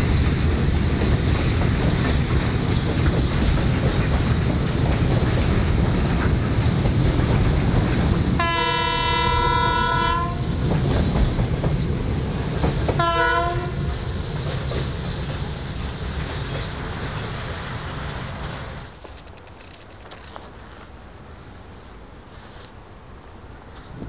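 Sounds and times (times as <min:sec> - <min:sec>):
train wagons rumbling and clattering: 0:00.0 - 0:21.8
locomotive horn: 0:08.4 - 0:10.5, 0:13.0 - 0:13.9.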